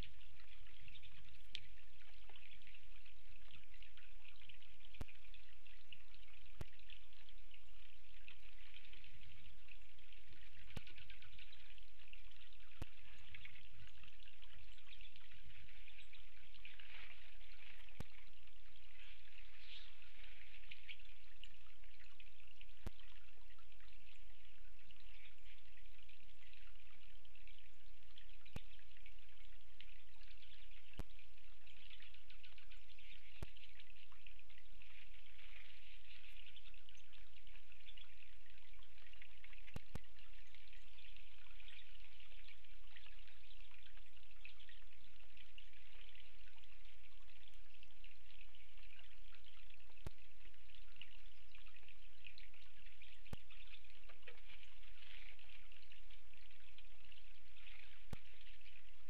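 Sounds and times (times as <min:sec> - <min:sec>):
wet snow and meltwater dripping: 0:00.0 - 0:59.0.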